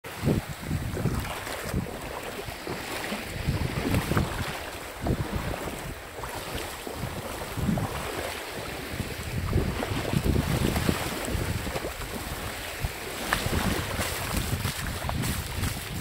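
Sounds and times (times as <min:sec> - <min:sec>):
small waves washing: 0:00.0 - 0:16.0
wind buffeting microphone: 0:00.0 - 0:16.0.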